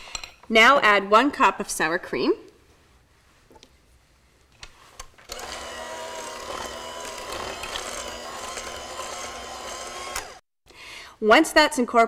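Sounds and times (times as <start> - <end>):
electric hand mixer running: 5.3 - 10.4.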